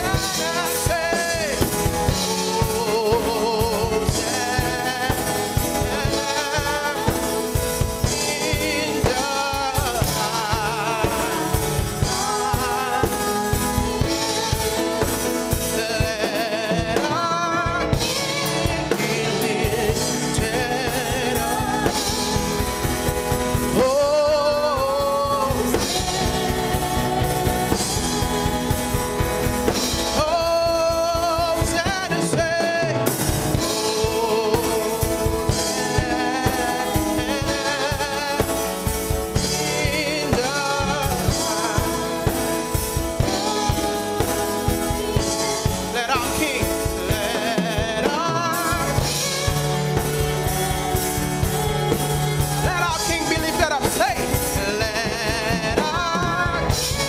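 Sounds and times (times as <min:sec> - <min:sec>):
electronic keyboard: 0:00.0 - 0:57.0
man singing: 0:00.0 - 0:57.0
steady drum beat: 0:00.0 - 0:57.0
woman singing: 0:00.0 - 0:57.0.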